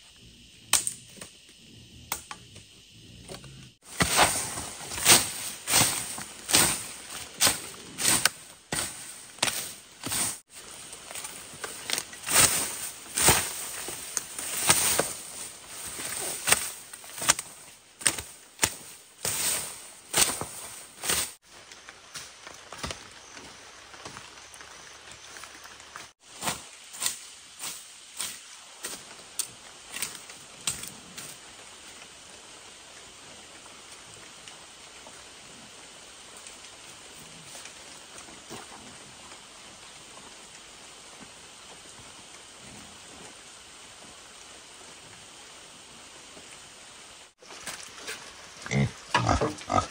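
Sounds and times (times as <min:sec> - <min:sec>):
steady even hiss: 0:00.0 - 0:49.9
machete chopping undergrowth: 0:03.8 - 0:10.4, 0:11.2 - 0:21.4.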